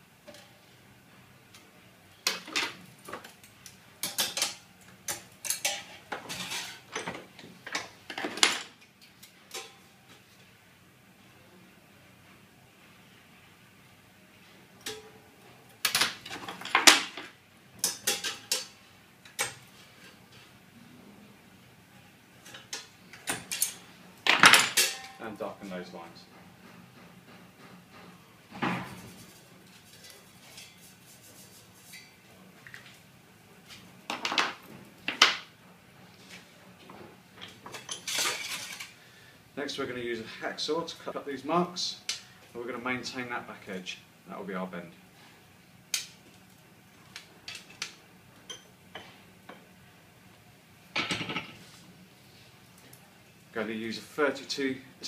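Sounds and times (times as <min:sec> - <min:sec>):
metal tray clattering: 0:05.4 - 0:07.2.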